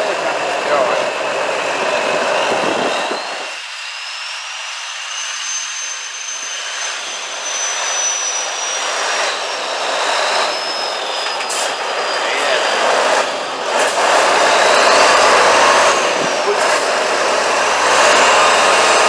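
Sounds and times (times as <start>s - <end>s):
truck diesel engine working hard: 0.0s - 19.0s
high whistle: 2.9s - 12.8s.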